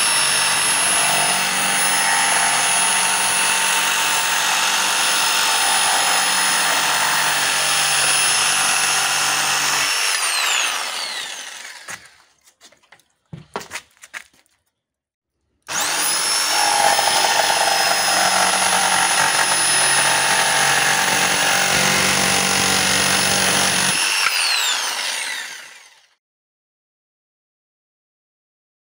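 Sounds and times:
electric jigsaw cutting board: 0.0 - 12.2, 15.7 - 26.2.

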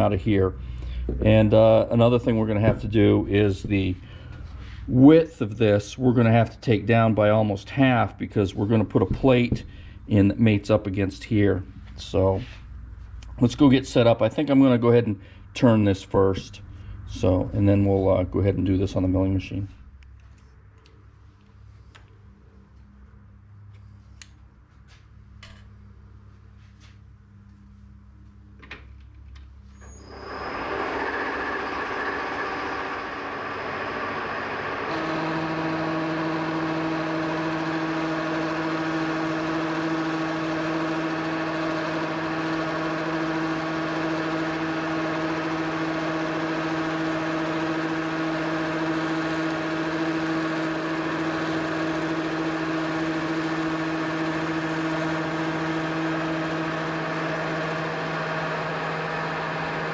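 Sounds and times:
steady even hum: 0.0 - 41.2
metal lathe running: 29.8 - 59.9.

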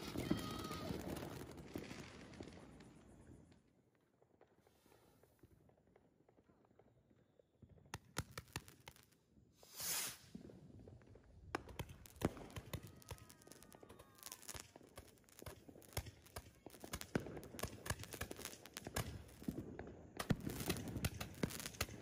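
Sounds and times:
fireworks popping and crackling: 0.0 - 22.0
firework rushing hiss: 9.6 - 10.6, 11.6 - 22.0.

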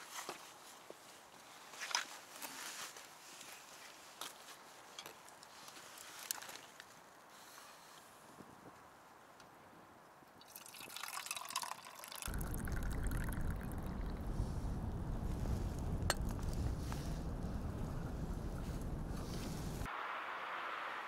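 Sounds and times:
coffee being poured: 10.4 - 18.6
steady low rumbling: 12.3 - 19.9.

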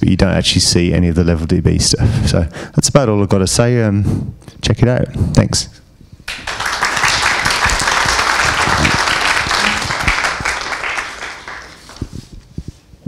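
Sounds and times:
audience applauding: 6.3 - 12.2.

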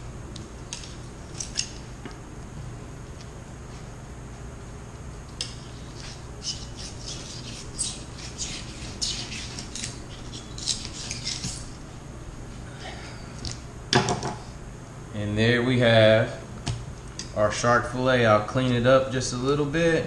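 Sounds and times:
steady low hum: 0.0 - 20.0
knife scraping fish skin: 5.4 - 11.8.

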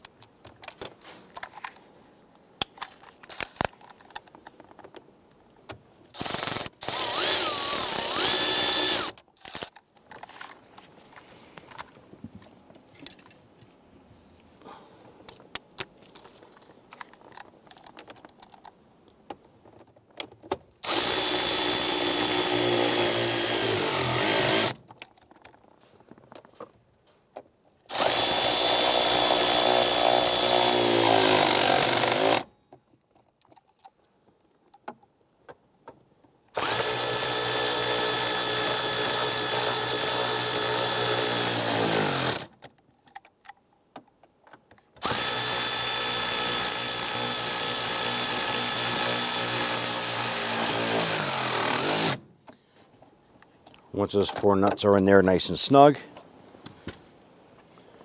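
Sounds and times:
power tool spinning socket: 6.2 - 10.5, 20.8 - 24.8, 36.6 - 42.5, 45.0 - 52.2.

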